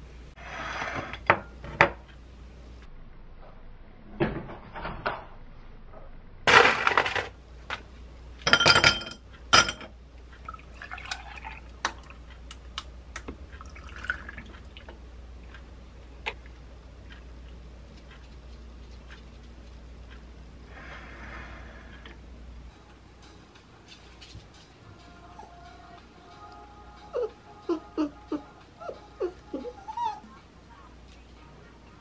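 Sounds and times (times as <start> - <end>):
milk pouring into glass: 10.5 - 12.1, 13.6 - 14.5.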